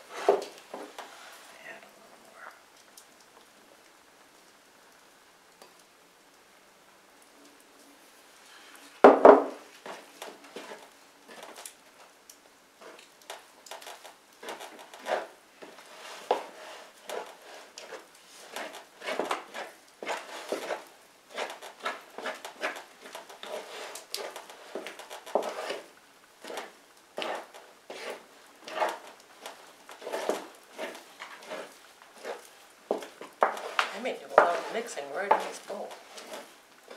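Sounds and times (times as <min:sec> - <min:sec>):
wooden spoon scraping dough in bowl: 0:00.0 - 0:01.4, 0:14.4 - 0:36.9.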